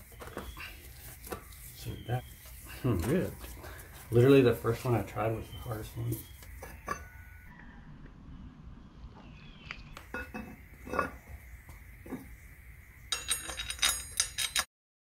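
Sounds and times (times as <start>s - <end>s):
metal parts clinking: 13.1s - 14.7s.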